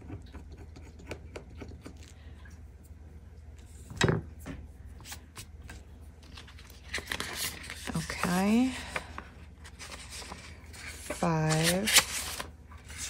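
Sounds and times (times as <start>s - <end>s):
card and paper handled: 5.0s - 13.0s.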